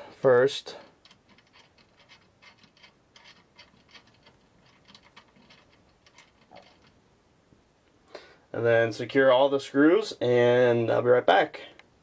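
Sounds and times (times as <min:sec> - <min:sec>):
screw ticking and scratching: 0:00.9 - 0:07.0.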